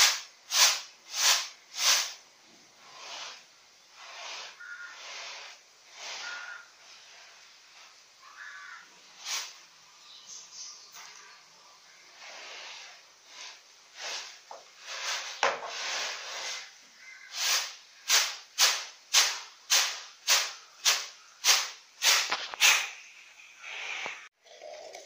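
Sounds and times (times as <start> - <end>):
fingertip scraping through rice bran: 0.0 - 2.2, 4.0 - 9.5, 12.1 - 23.0.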